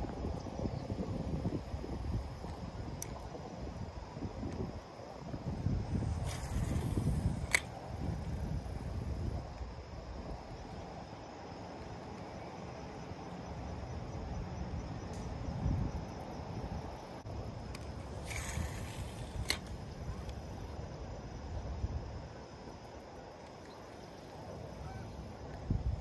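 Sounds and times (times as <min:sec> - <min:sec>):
wind buffeting microphone: 0:00.0 - 0:10.6
brief hiss: 0:05.7 - 0:09.0, 0:18.1 - 0:20.5
sharp click: 0:06.2 - 0:08.3, 0:17.7 - 0:20.4.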